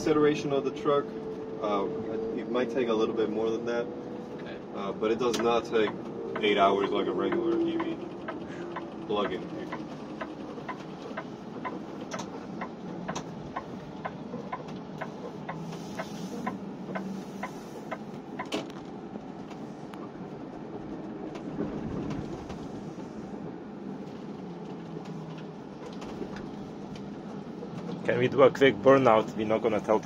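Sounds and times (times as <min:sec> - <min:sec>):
electric truck road and drivetrain hum: 0:00.0 - 0:30.0
turn signal ticking: 0:05.3 - 0:18.6.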